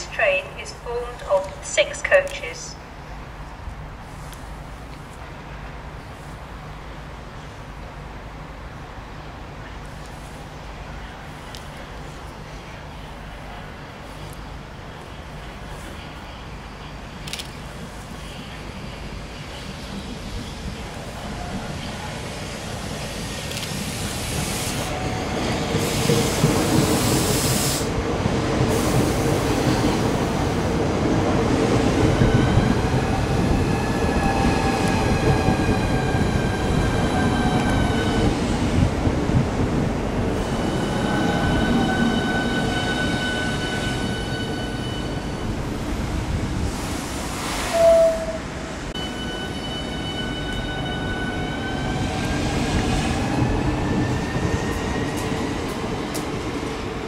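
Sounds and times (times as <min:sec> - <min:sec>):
air hiss bursts: 0:25.8 - 0:28.0.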